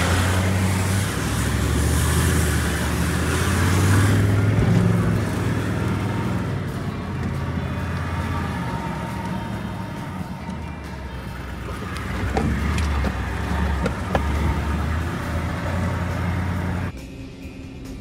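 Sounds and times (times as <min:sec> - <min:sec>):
vehicle engine and cab noise: 0:00.0 - 0:18.0
vehicle jolting knocks and rattles: 0:11.8 - 0:14.5.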